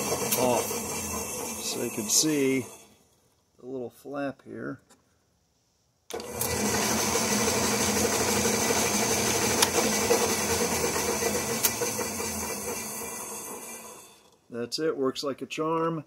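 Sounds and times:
bandsaw running: 0.0 - 3.0, 6.1 - 14.3.

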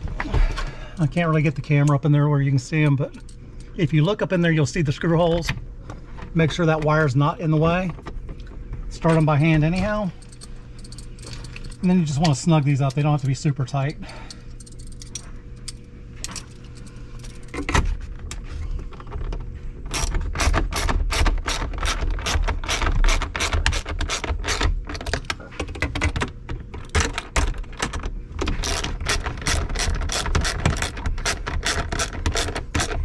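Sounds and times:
hand ratchet clicking: 19.9 - 25.1, 28.6 - 33.0.

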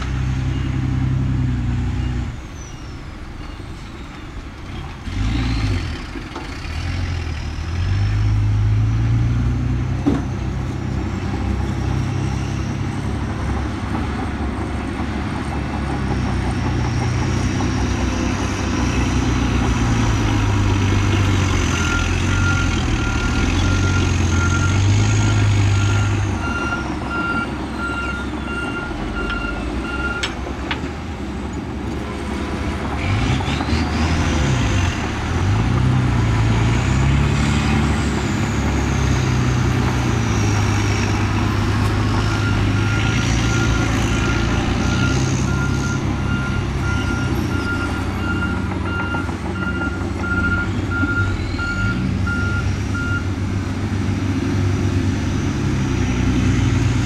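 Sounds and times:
heavy diesel engines running: 0.0 - 57.0
reversing alarm beeping: 2.0 - 4.4, 21.7 - 30.4, 42.1 - 53.3.

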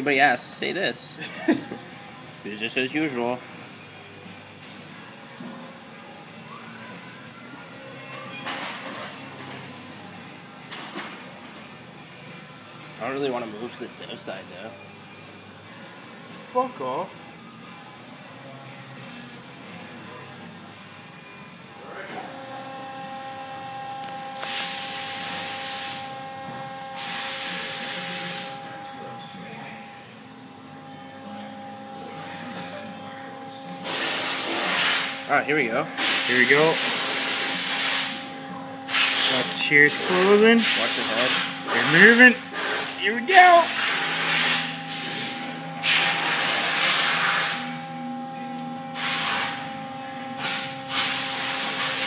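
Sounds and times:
two-note machine whine: 12.1 - 52.0
pressurized hissing bursts: 24.4 - 26.1, 27.0 - 28.6, 33.8 - 35.2, 36.0 - 38.3, 38.9 - 47.7, 49.0 - 49.6, 50.4 - 52.0.

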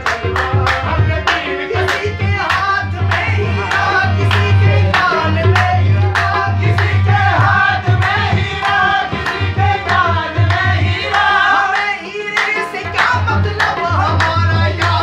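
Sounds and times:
men singing: 0.0 - 15.0
hand drum beat: 3.8 - 11.7.

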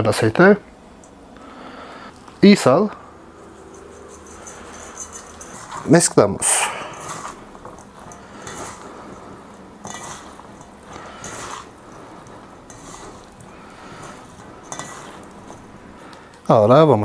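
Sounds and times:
hands brushing metal bowl: 3.4 - 16.0
hands tossing salad: 3.4 - 16.4.

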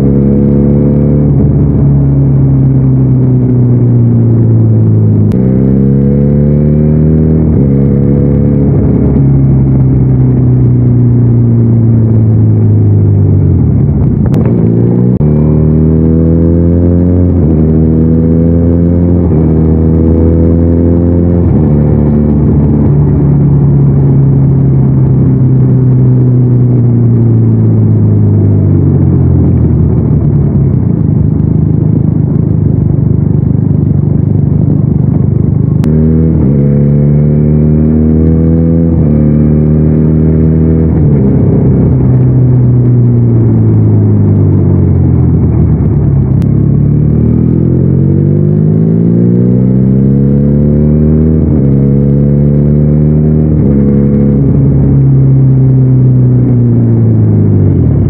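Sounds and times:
motorcycle engine shifting gears: 0.0 - 58.0.

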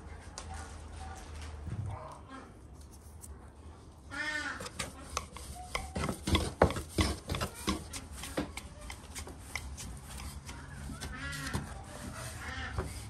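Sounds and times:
rolling pin knocking on board: 4.7 - 9.9.

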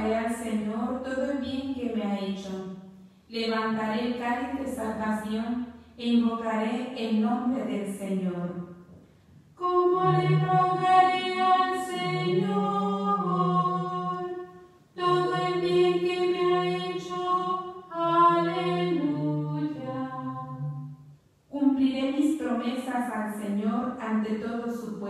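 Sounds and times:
woman chanting unaccompanied: 0.0 - 2.6, 9.6 - 14.4, 15.0 - 20.7.

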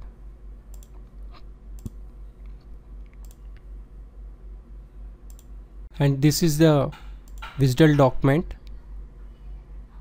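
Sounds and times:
faint low hum: 0.0 - 10.0
computer mouse clicks: 0.7 - 1.1, 1.8 - 2.0, 3.0 - 3.7, 5.3 - 5.5.

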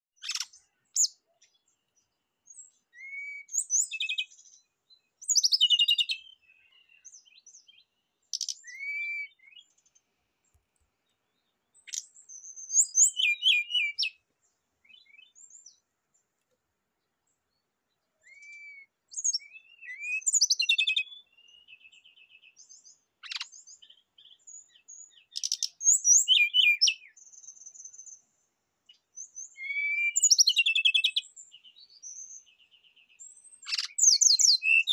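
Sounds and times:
bird singing whistles and trills: 0.2 - 10.0, 11.8 - 14.2, 14.8 - 15.8, 18.2 - 34.9.

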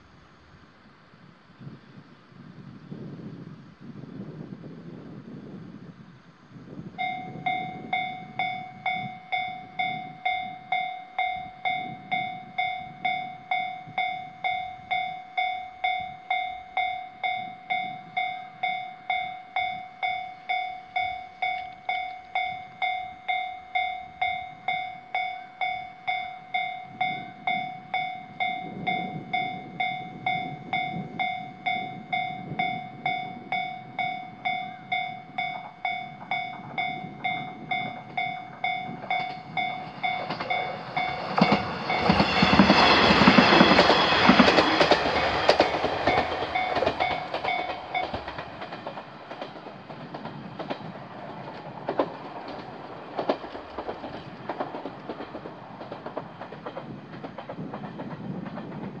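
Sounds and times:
level crossing warning bell: 7.0 - 49.6
train wheels clacking: 7.0 - 59.0.

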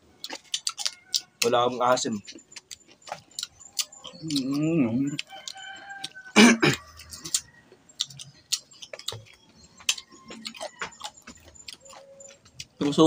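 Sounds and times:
clicks and smacks of eating: 0.2 - 13.0
person coughing: 6.4 - 6.9.

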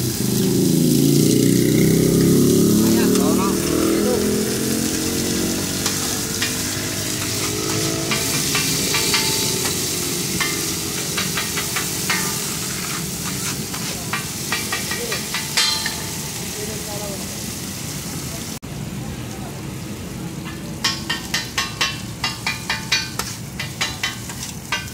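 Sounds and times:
onions sizzling in oil: 0.0 - 24.9
metal spatula scraping griddle: 2.9 - 16.4, 20.9 - 24.9.

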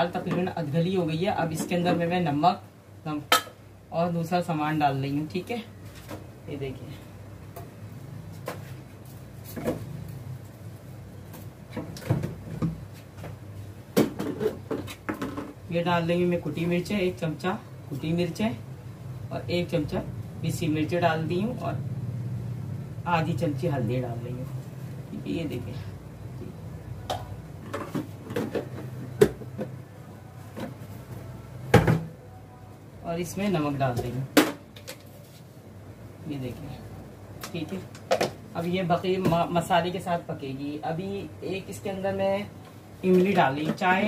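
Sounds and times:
kitchen items knocking and clattering: 13.9 - 15.6, 27.1 - 29.8, 31.7 - 32.2.

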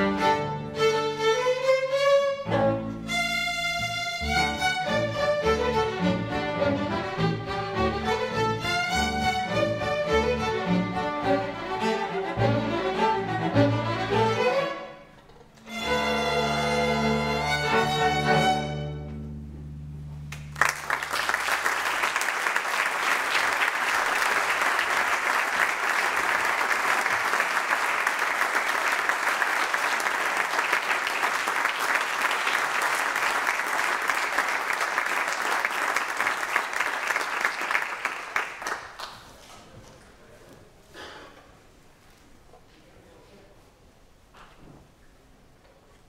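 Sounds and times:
string orchestra final chord: 15.7 - 19.4
audience applauding: 20.3 - 39.7.

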